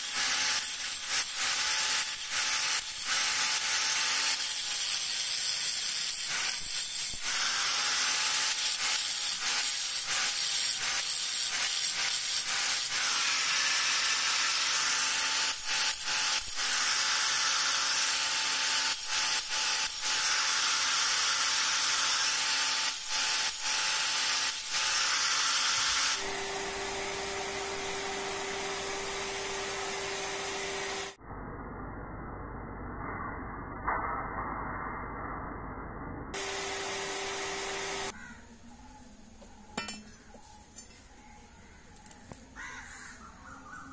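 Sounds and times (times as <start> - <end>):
angle grinder grinding metal: 0.0 - 31.2, 36.4 - 38.2.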